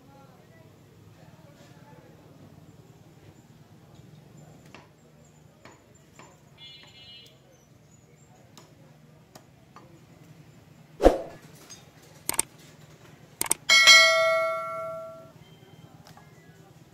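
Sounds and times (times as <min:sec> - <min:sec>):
bell ding: 0:13.7 - 0:15.3.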